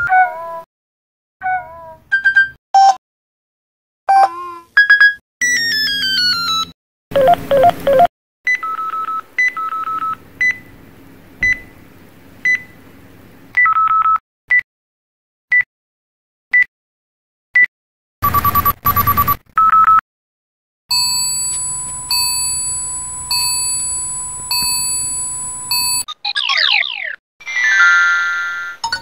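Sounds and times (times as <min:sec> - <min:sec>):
electronic beeps and held tones: 0:07.2 - 0:10.6, 0:17.6 - 0:20.0, 0:20.9 - 0:26.9
short phone beeps: 0:17.6 - 0:20.0, 0:20.9 - 0:26.1
phone alert melody: 0:20.9 - 0:26.0.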